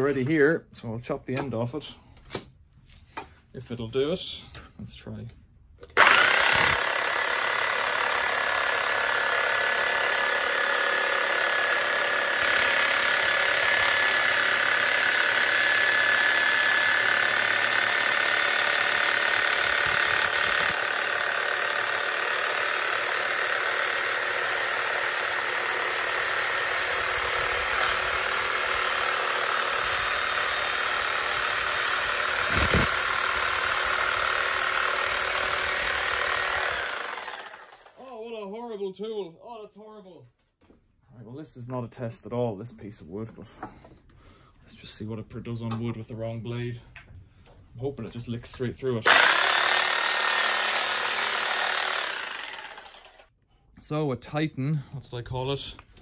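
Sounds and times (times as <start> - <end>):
saw blade rasping wood: 6.0 - 37.8, 49.1 - 53.2.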